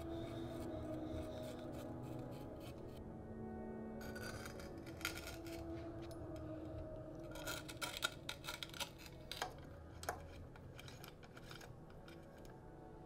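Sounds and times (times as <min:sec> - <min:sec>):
bike parts clicking: 0:07.3 - 0:12.5.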